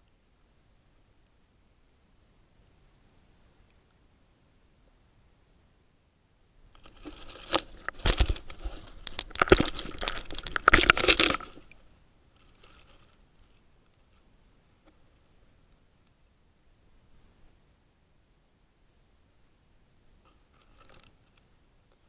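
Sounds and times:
camera housing scraping on rocks underwater: 0:06.8 - 0:11.8.

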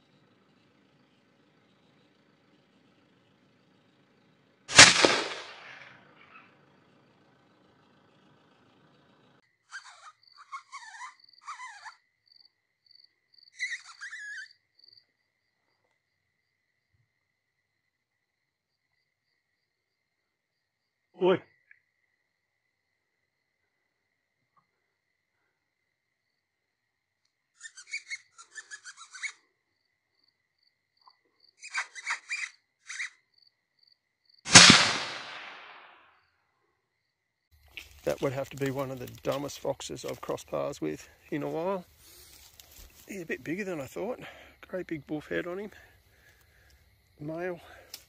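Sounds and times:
suppressed rifle shot: 0:04.7 - 0:06.0, 0:34.5 - 0:36.0
squeaky lip calls: 0:06.0 - 0:06.6, 0:09.6 - 0:12.0, 0:13.5 - 0:14.6, 0:27.6 - 0:29.5, 0:31.0 - 0:33.2
high insect trill: 0:09.3 - 0:25.1, 0:25.7 - 0:34.7.

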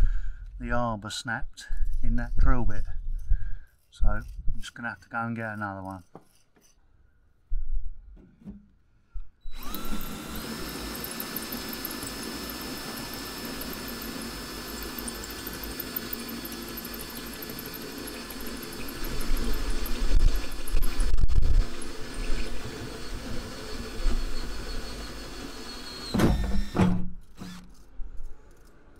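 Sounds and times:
hole saw cutting sheet metal: 0:03.7 - 0:06.8, 0:09.4 - 0:28.8
drill motor whine: 0:09.4 - 0:28.9.

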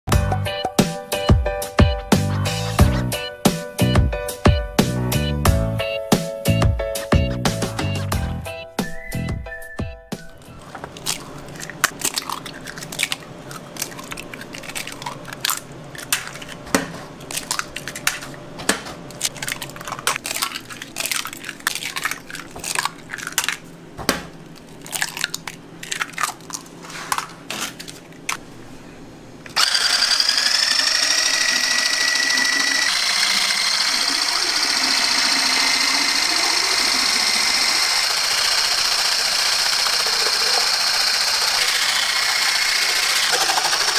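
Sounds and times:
eggs cracking: 0:10.4 - 0:16.6, 0:17.2 - 0:18.4, 0:19.1 - 0:28.4
electric whisk whining: 0:29.6 - 0:43.9.

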